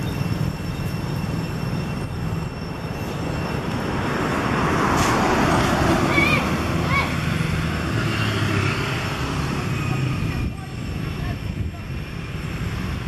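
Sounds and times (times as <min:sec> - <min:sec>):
traffic rumble: 0:00.0 - 0:13.0
vehicle passing: 0:03.8 - 0:11.2.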